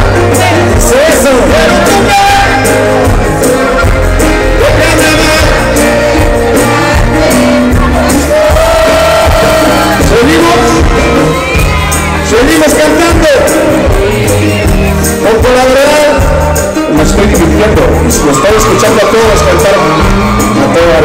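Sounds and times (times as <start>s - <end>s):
people singing: 0.0s - 12.2s
accordion melody: 0.0s - 21.0s
congas: 0.0s - 21.0s
drum kit beat: 0.0s - 21.0s
guitar: 0.0s - 21.0s.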